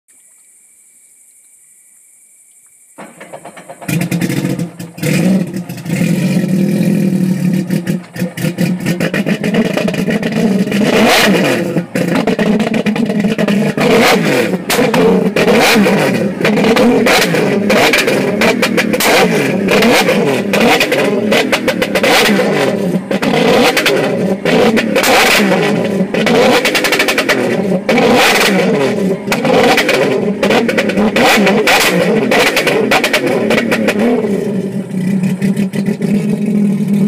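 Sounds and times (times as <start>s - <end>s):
faint hiss: 0.1s - 3.2s
exhaust pops and crackles: 3.0s - 37.0s
watercraft engine revving: 3.0s - 37.0s.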